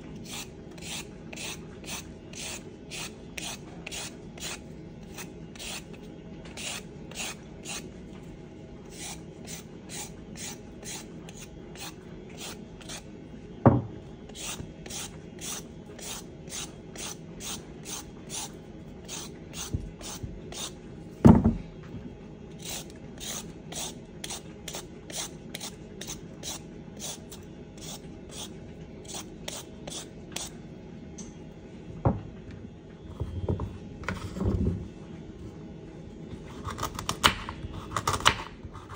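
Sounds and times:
peeler scraping carrot: 0.2 - 7.9, 8.9 - 13.1, 14.3 - 20.8, 22.6 - 30.5.

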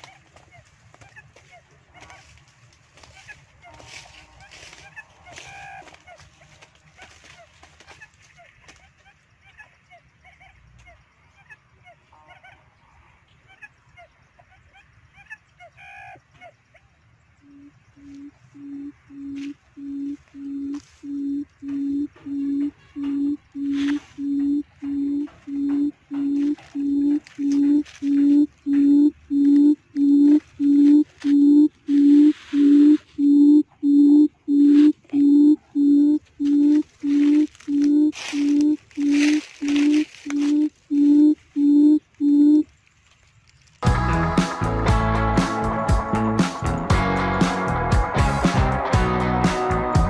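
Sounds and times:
bird low hooting calls: 17.4 - 42.7
rustling: 36.2 - 41.6.

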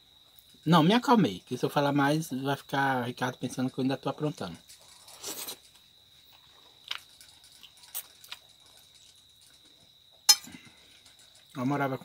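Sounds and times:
high-pitched insect whine: 0.0 - 12.0
quiet chewing: 4.6 - 11.6.

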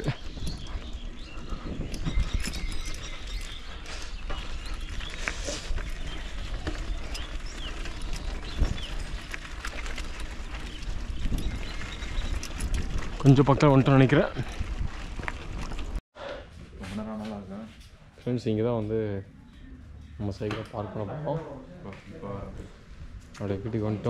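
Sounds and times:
bicycle rattling over rough road: 0.0 - 16.0.

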